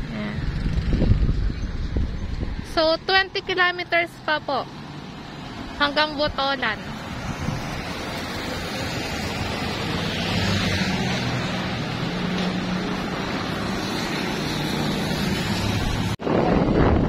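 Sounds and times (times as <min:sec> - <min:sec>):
road and wind noise: 0:00.0 - 0:17.0.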